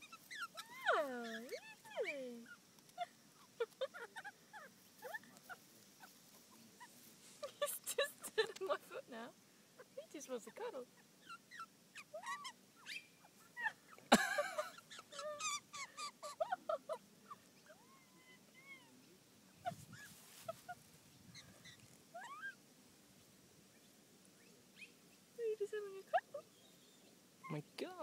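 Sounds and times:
magpie chirping and squeaking: 0:00.0 - 0:02.6, 0:11.2 - 0:13.2, 0:14.7 - 0:16.4.

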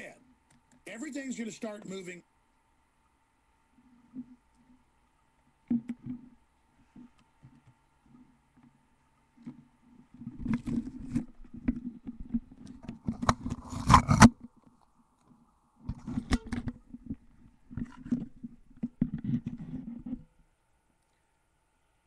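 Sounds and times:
rubbing and scraping on microphone: 0:03.8 - 0:04.9, 0:05.7 - 0:14.6, 0:15.3 - 0:20.4.

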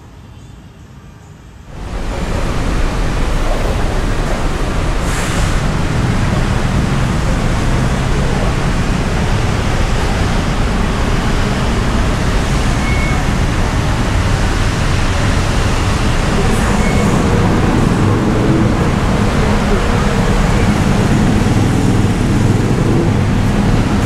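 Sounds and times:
traffic din: 0:00.0 - 0:24.0
short faint beeps: 0:12.8 - 0:13.3.

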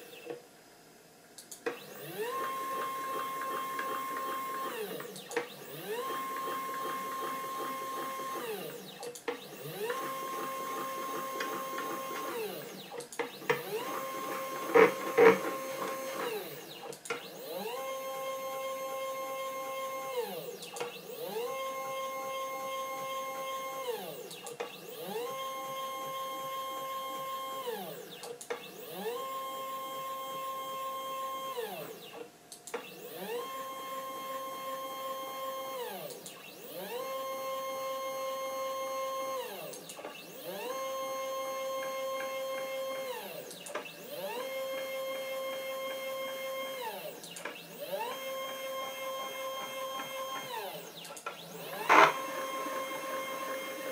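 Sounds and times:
stepper motor whine: 0:40.2 - 0:53.9.

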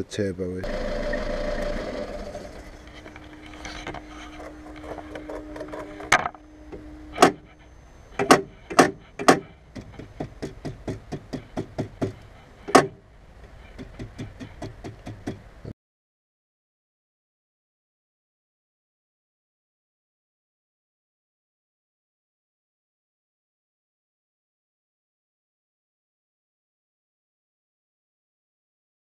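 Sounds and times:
low steady hum: 0:00.0 - 0:15.7
sharp knocks and clicks: 0:08.2 - 0:15.5.

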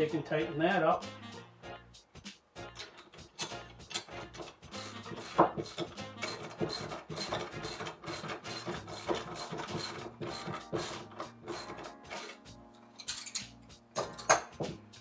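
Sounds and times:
socket ratchet clicking: 0:02.7 - 0:12.4.

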